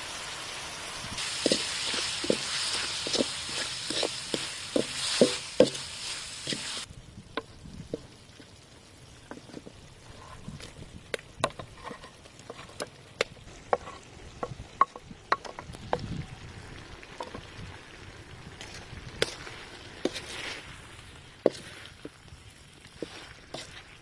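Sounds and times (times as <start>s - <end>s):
oil sizzling: 0.0s - 24.0s
utensil scraping and knocking wok: 1.2s - 8.1s, 9.2s - 15.7s, 18.6s - 22.2s, 22.8s - 24.0s.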